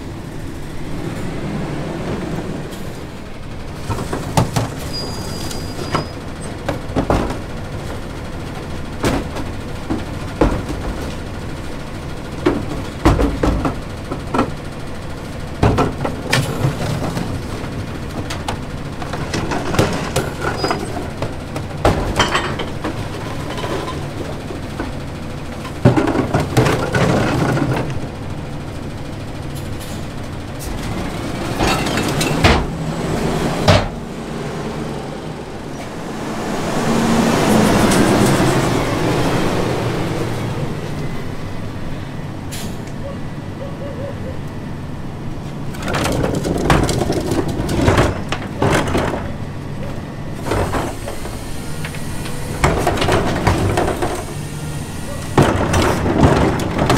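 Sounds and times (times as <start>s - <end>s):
garbage truck engine running: 0.0s - 56.9s
recyclables banging into hopper: 3.7s - 28.2s, 30.6s - 33.0s, 45.7s - 56.9s.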